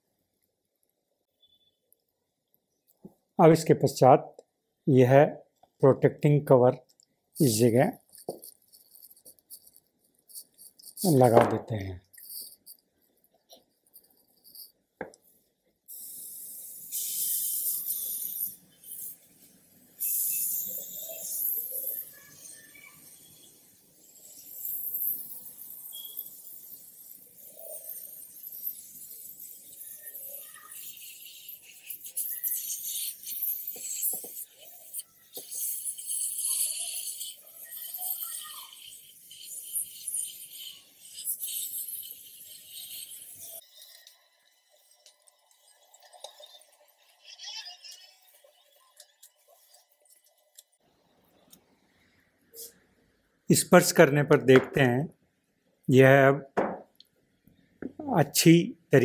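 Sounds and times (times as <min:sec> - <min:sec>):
hot-air gun hissing: 0:15.9 - 0:21.8, 0:25.9 - 0:44.2.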